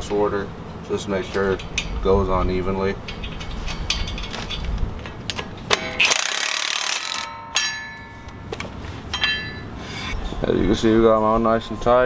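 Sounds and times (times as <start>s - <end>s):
metal nuts clinking: 3.0s - 10.2s
impact wrench hammering: 3.1s - 10.2s.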